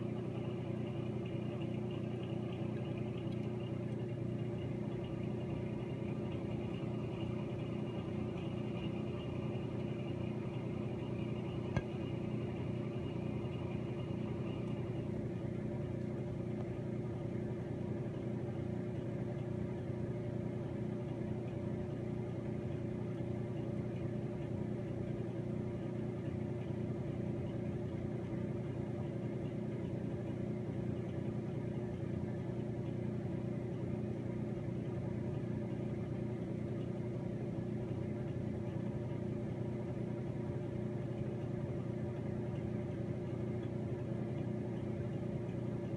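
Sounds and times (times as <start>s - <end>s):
faint high whine: 0.0s - 18.7s
low mechanical hum: 0.0s - 45.9s.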